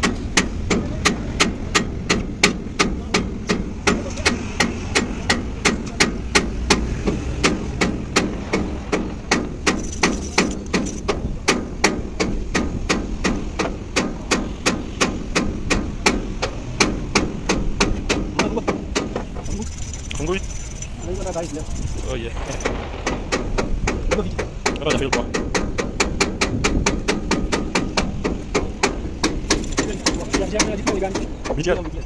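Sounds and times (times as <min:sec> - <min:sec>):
hammer strikes: 0:00.0 - 0:19.5, 0:22.4 - 0:31.6
low steady rumble: 0:00.0 - 0:32.0.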